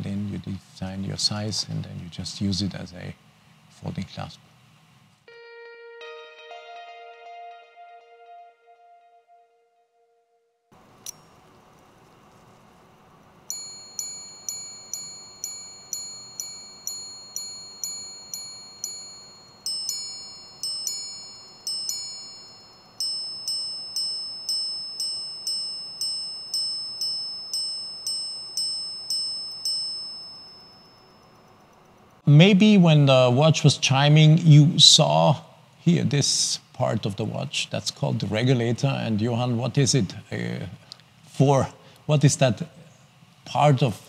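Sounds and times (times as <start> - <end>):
watch chime strikes: 13.5 - 31.8.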